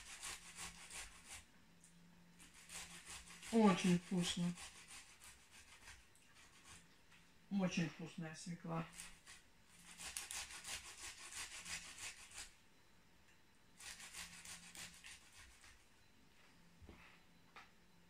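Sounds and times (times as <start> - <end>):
beetroot grated on metal grater: 2.4 - 5.8.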